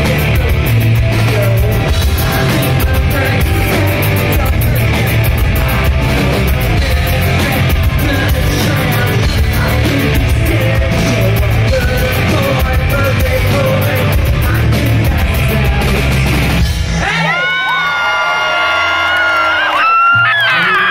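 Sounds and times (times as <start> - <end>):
live rock band playing: 0.0 - 17.3
crowd yelling and whooping: 15.4 - 20.9.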